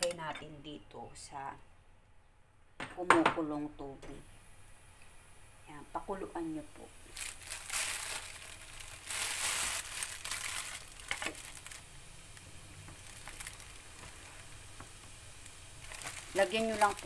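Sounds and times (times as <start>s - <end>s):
faint steady hiss: 0.0s - 17.0s
rustling and crinkling handling: 7.1s - 11.8s, 12.4s - 15.1s, 15.8s - 17.0s.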